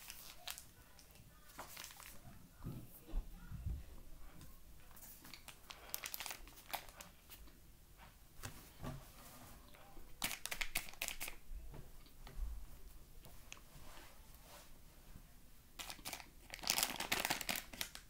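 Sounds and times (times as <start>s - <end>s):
bag crinkling: 1.5s - 2.2s, 5.3s - 7.1s, 10.2s - 11.4s, 15.8s - 18.0s.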